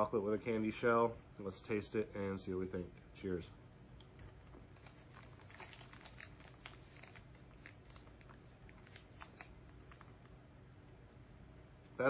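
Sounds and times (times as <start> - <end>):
candy shell crunching while chewed: 4.1 - 10.3.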